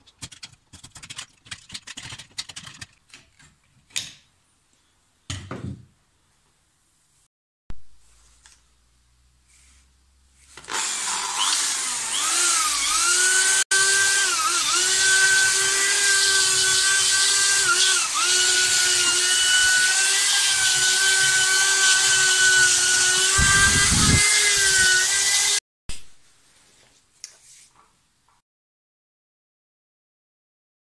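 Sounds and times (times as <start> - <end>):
electric drill sanding wood: 10.6 - 25.6.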